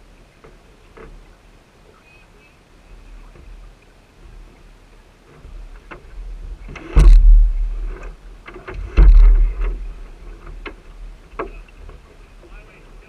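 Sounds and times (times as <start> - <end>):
low water rushes: 0.0 - 13.0
water slapping hull: 2.8 - 13.0.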